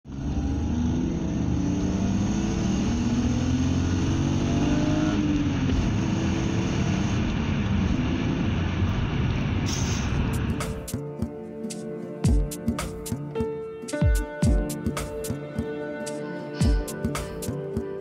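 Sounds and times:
car engine accelerating: 0.0s - 10.9s.

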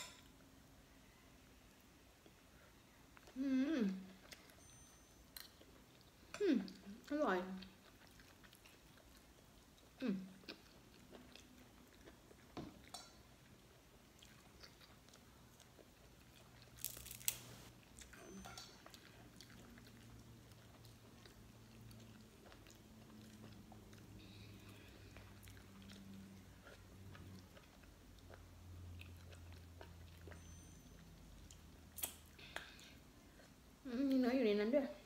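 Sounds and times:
soft chewing: 0.6s - 35.0s
shellfish shell cracking: 16.8s - 17.6s.

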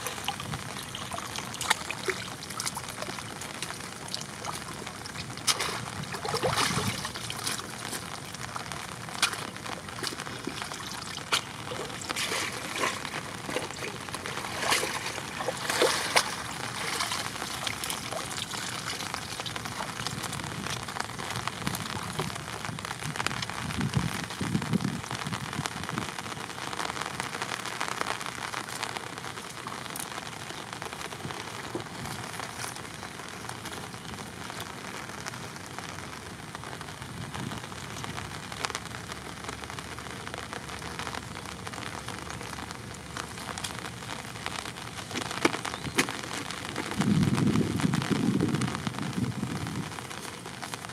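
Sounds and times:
water splashing: 0.0s - 22.8s
water streaming and dripping: 0.0s - 50.9s.

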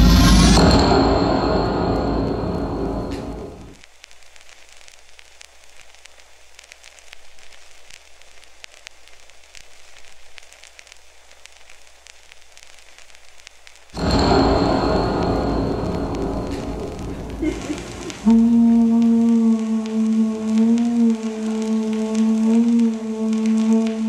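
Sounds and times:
music: 0.0s - 3.8s, 14.0s - 24.0s
crackling hiss with clicks: 0.6s - 24.0s.

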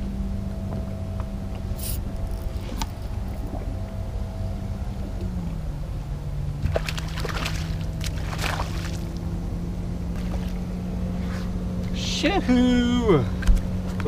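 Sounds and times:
electric trolling motor hum: 0.0s - 14.0s
fish splashing at water surface: 6.6s - 9.1s.

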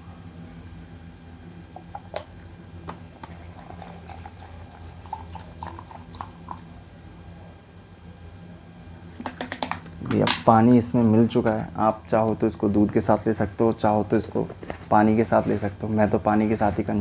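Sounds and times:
low electrical hum: 0.0s - 17.0s
water pouring into plastic cup: 3.2s - 6.6s.

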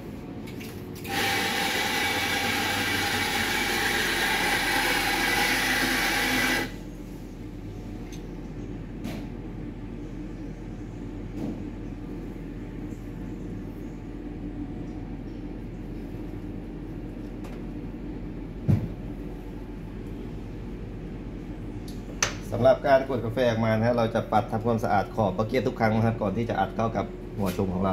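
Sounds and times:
electric coffee grinder grinding: 1.1s - 6.7s.

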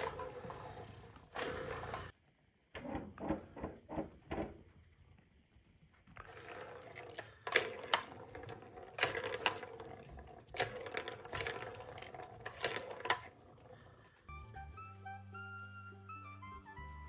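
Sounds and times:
plastic balls rolling rattle: 0.0s - 2.2s, 6.0s - 14.3s.

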